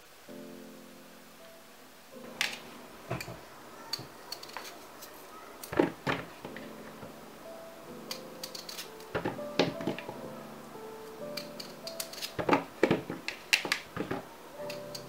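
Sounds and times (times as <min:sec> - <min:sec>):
faint background music: 0:00.0 - 0:15.0.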